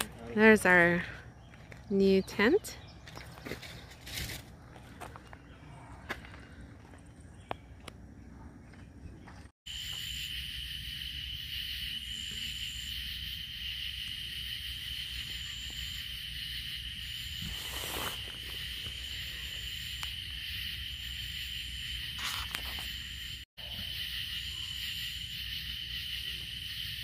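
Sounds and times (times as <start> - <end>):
high insect trill: 9.7 - 27.0
high-pitched insect chorus: 9.7 - 27.0.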